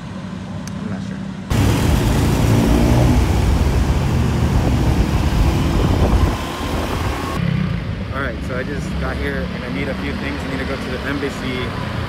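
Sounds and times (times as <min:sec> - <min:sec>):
motorbike engine rumble: 0:01.5 - 0:07.4
wind rushing on microphone: 0:03.0 - 0:07.4.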